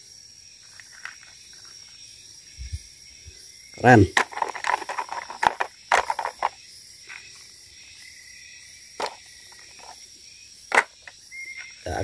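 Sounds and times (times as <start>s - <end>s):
high insect drone: 0.0s - 12.0s
plastic toys clicking and knocking: 4.1s - 6.6s, 9.0s - 10.0s, 10.7s - 11.1s.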